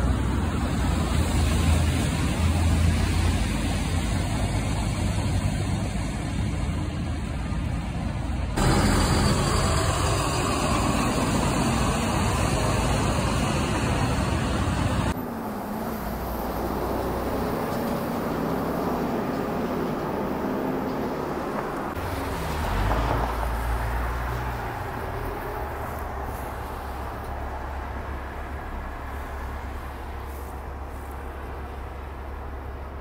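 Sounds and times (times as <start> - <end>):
tyre hiss on wet street: 0.0 - 7.5, 8.6 - 19.0, 21.5 - 33.0
heavy trucks driving past: 0.0 - 33.0
truck engine revving: 8.6 - 32.9.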